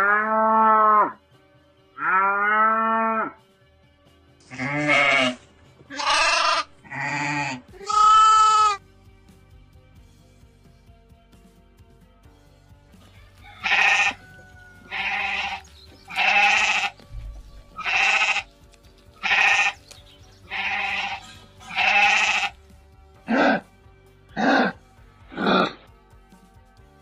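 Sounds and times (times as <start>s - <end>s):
background music: 0.0s - 27.0s
animal calls: 13.5s - 17.0s, 17.7s - 18.5s, 19.2s - 22.6s, 23.3s - 23.7s, 24.3s - 25.9s.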